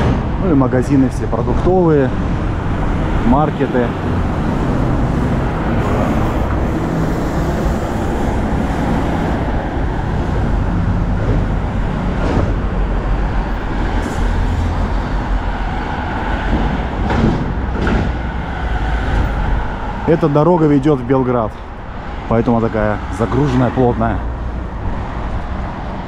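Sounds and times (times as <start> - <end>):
road traffic passing: 0.0 - 26.0.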